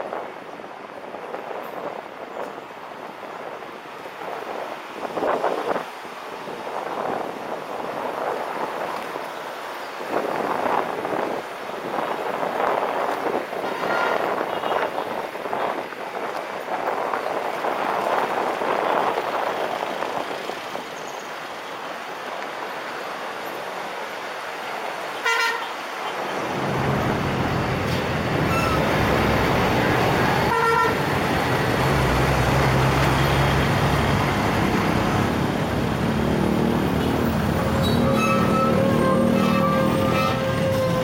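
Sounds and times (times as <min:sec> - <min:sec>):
low rumble of bus engines: 0:00.0 - 0:41.0
wind and road noise: 0:00.0 - 0:41.0
vehicle horn toots: 0:13.6 - 0:14.9, 0:25.2 - 0:25.8, 0:28.4 - 0:28.9, 0:30.5 - 0:31.0, 0:37.8 - 0:41.0.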